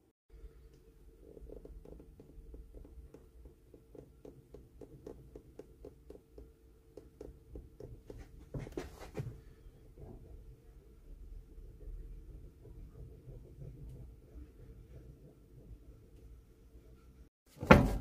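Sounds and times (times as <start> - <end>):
scuffs: 8.2 - 9.4.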